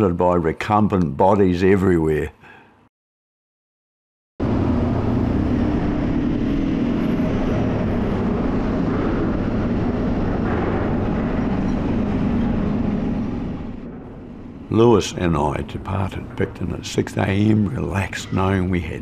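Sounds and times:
vehicle engine rumbling: 4.4 - 18.1
faint wavering hum: 4.4 - 19.0.

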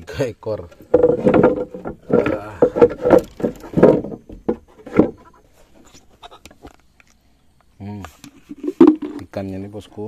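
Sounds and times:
wooden boards knocking and scraping: 0.6 - 6.8, 8.4 - 9.3.

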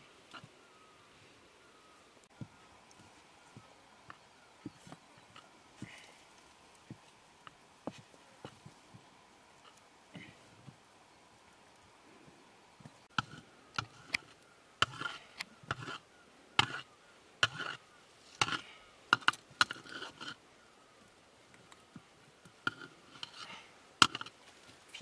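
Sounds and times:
metal ladle knocking and scraping pot: 24.0 - 24.3.

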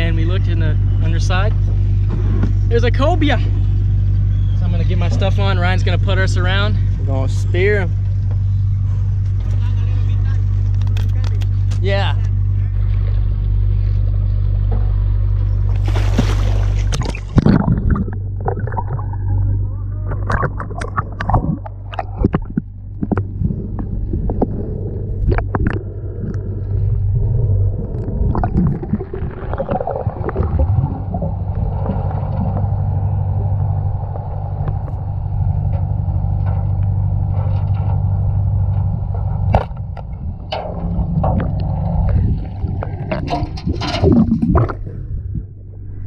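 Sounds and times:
boat engine hum underwater: 0.0 - 46.0.

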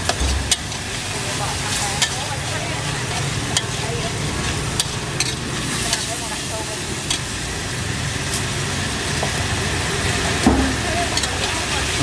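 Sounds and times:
spatula clanking on a pan: 0.0 - 6.3, 10.4 - 12.0
metal spatula scraping a pan: 0.0 - 6.4
food sizzling in a wok: 0.0 - 12.0.

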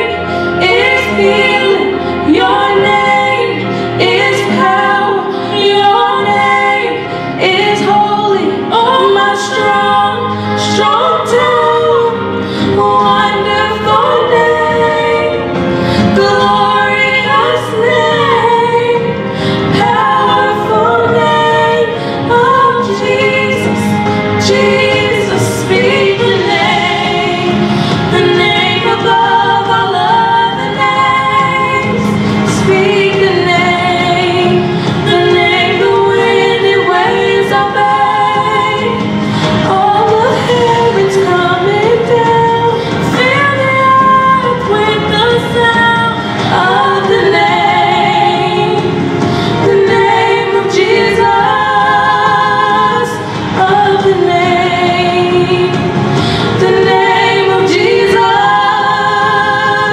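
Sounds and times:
instrumental accompaniment: 0.0 - 59.9
two women singing: 0.0 - 59.9.

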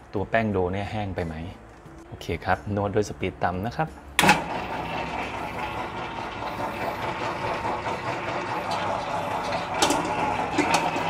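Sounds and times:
stand mixer motor hum: 4.2 - 11.0.

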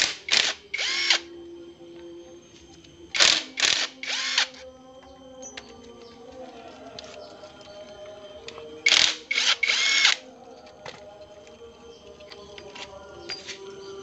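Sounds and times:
cordless driver spinning: 0.0 - 1.2, 3.2 - 4.6, 8.9 - 10.2.

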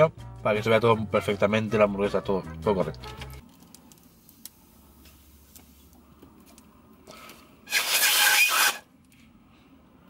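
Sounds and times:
paper-wrapped straw rasping: 7.7 - 8.8.

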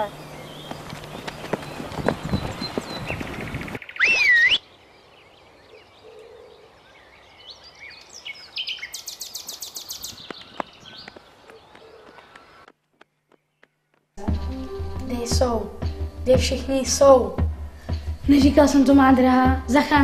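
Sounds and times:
songbirds chirping: 0.0 - 20.0
high wavering squeal: 4.0 - 4.6.

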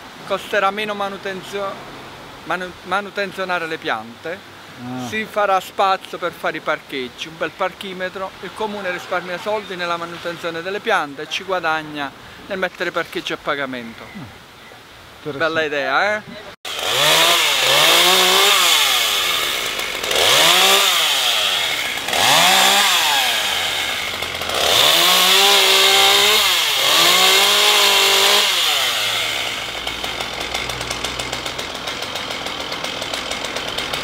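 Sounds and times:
chainsaw cutting wood: 16.7 - 34.0.

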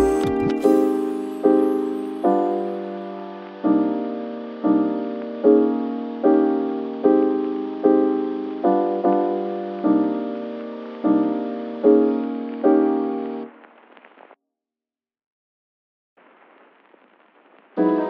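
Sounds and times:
piano chords: 0.0 - 13.5, 17.8 - 18.0.

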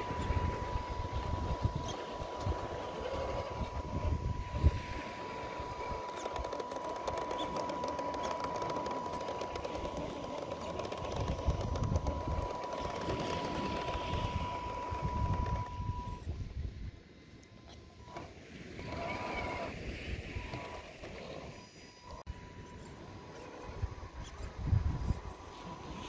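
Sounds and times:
electric motor whining: 0.0 - 16.4, 18.0 - 24.4
thin high steady tone: 0.0 - 16.4.

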